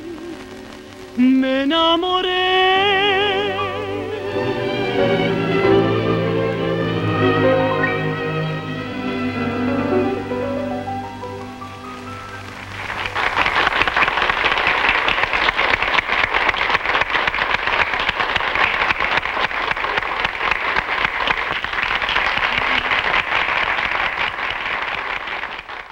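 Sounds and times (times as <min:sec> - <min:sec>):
last note of song: 0:00.2 - 0:13.2
audience applauding: 0:02.8 - 0:25.9.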